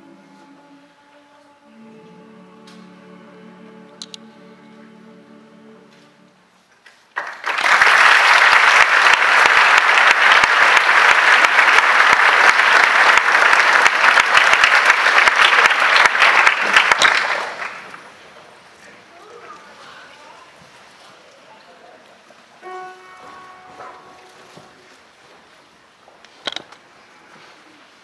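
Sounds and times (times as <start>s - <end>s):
audience applauding: 7.1s - 18.1s.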